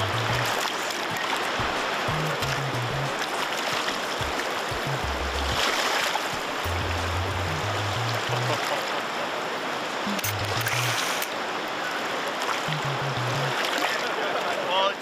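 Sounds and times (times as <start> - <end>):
bass notes of background music: 0.0 - 0.6, 2.0 - 3.2, 4.2 - 5.6, 6.6 - 8.6, 10.2 - 11.0, 12.7 - 13.6
river running over stones: 0.0 - 15.0.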